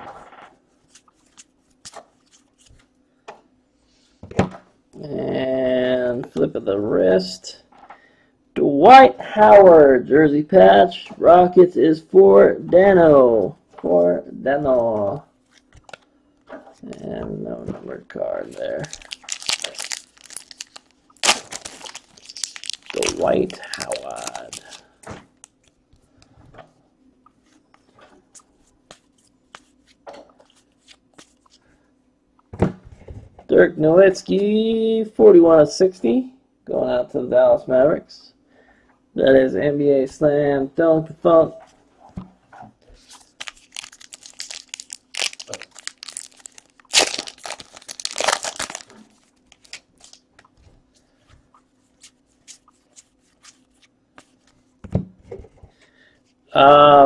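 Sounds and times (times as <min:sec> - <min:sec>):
foil wrapper tearing and crinkling: 0:18.5 - 0:25.6, 0:43.2 - 0:50.3.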